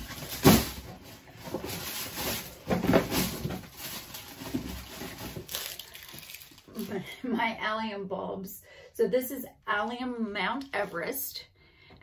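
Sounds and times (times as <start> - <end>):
rustling: 0.0 - 6.9.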